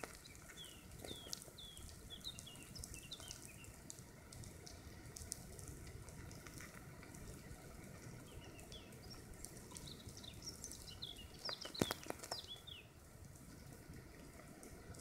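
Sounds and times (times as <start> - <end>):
bird chirping: 0.0 - 3.8, 9.8 - 12.9
ants crackling sizzle: 0.0 - 15.0.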